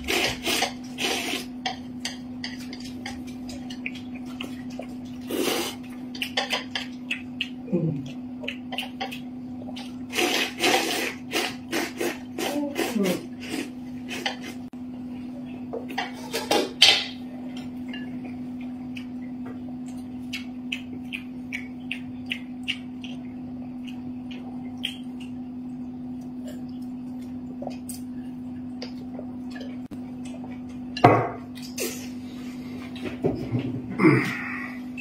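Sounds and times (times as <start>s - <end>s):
eating noises: 2.6s - 14.7s, 18.1s - 30.8s
chopsticks clicking on plates: 6.1s - 9.2s.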